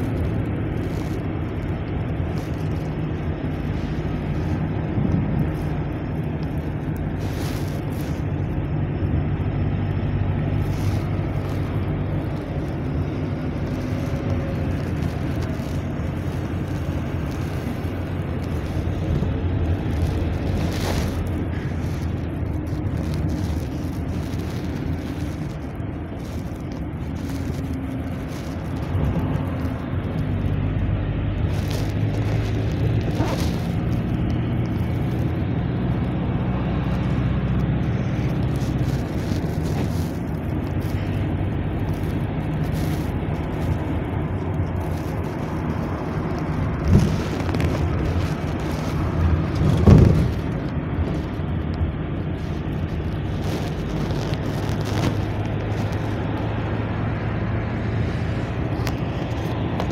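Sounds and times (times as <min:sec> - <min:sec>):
bus engine hum: 0:00.0 - 0:59.9
road noise: 0:00.0 - 0:59.9.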